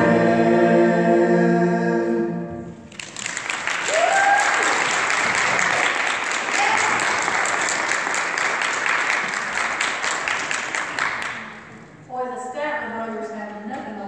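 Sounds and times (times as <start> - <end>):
congregation applauding: 2.9 - 11.7.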